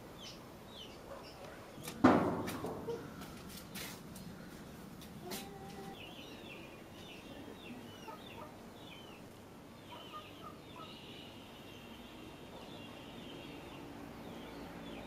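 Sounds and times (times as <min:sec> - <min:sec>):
small birds chirping: 0:00.1 - 0:02.0, 0:02.9 - 0:15.0.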